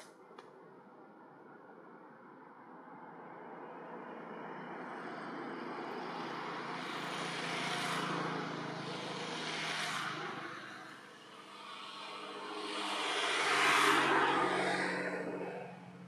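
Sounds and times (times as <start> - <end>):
passing motor vehicle engine: 5.2 - 16.0.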